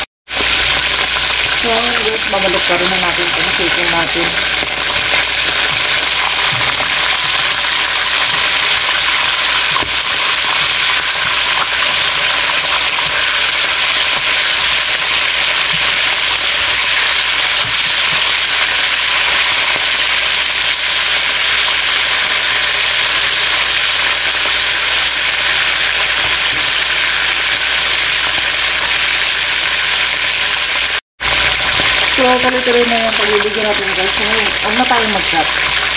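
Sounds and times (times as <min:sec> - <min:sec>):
chicken sizzling in hot oil: 0:00.0 - 0:35.9.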